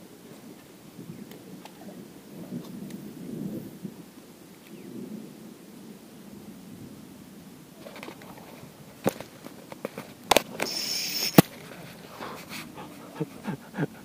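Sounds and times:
short high hiss: 10.5s - 12.7s.

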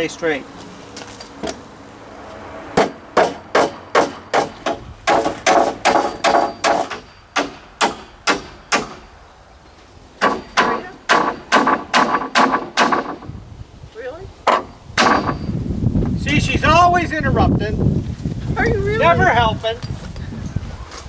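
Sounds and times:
hammer driving nails into wood: 2.8s - 9.0s, 10.2s - 13.3s, 14.5s - 15.4s.

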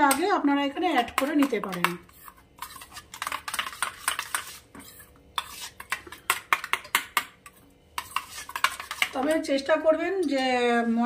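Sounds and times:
metal spoon scraping steel bowl: 1.0s - 9.7s.

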